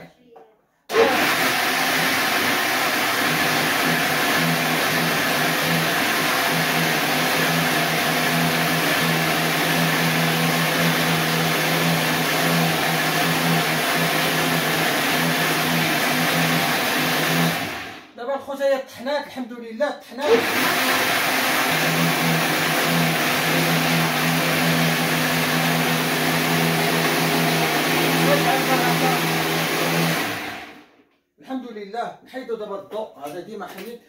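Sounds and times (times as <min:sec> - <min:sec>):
electric blender whirring: 0:00.9 - 0:18.1, 0:20.2 - 0:31.0.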